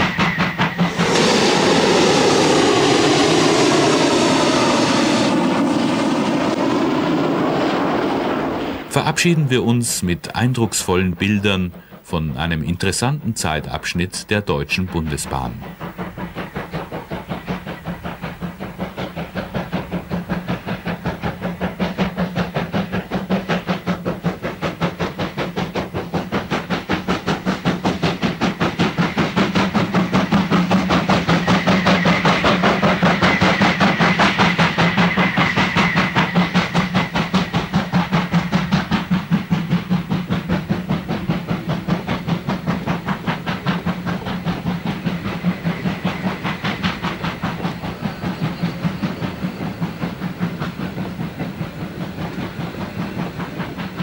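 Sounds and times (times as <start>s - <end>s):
steam locomotive exhaust beats: 0.0s - 54.0s.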